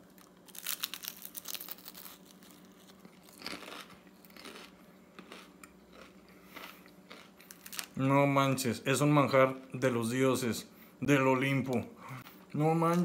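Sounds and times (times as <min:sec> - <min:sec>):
crunchy bite into spring roll: 0:00.1 - 0:07.9
chewing: 0:03.4 - 0:07.7.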